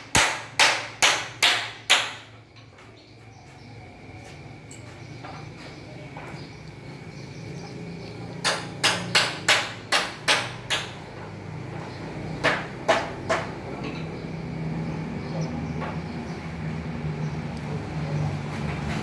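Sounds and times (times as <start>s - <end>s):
sharp knocks: 0.0s - 2.3s, 8.4s - 11.0s, 12.4s - 13.6s
steady low hum: 0.0s - 19.0s.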